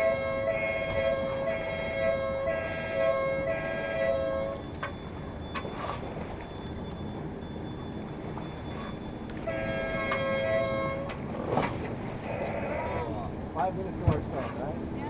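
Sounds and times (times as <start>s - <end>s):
two-tone siren: 0.0s - 11.2s
water noise: 0.0s - 15.0s
wind: 0.0s - 15.0s.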